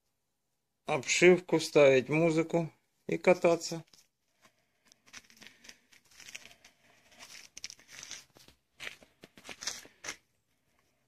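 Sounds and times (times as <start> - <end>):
material rustling and crinkling: 3.6 - 11.0.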